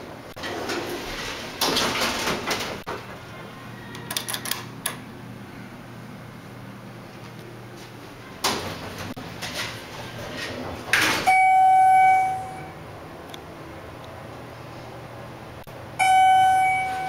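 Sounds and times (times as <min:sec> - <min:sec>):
elevator doors bumping: 0:00.0 - 0:05.0, 0:08.4 - 0:12.9, 0:15.9 - 0:17.0
elevator sliding doors running: 0:00.0 - 0:07.0, 0:07.6 - 0:17.0
electronic chime tone: 0:11.3 - 0:12.8, 0:16.0 - 0:17.0.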